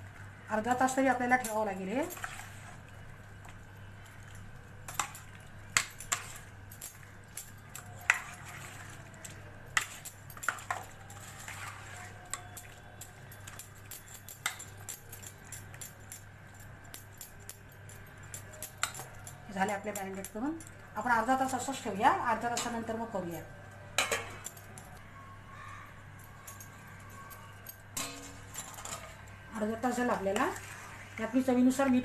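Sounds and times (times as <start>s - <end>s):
metal spoon scraping steel bowl: 28.0s - 29.3s.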